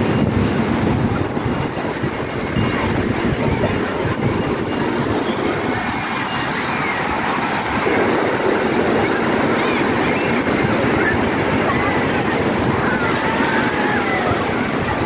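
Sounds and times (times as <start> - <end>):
ocean surf breaking on sand: 0.0 - 15.0
faint distant voices calling: 0.9 - 15.0.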